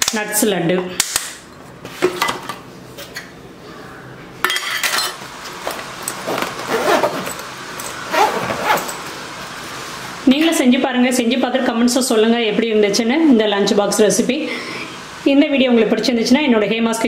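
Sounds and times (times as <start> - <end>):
lunch box containers clinking: 4.8 - 9.1
zipper closing: 5.6 - 9.1
fabric bag handled: 5.6 - 9.2.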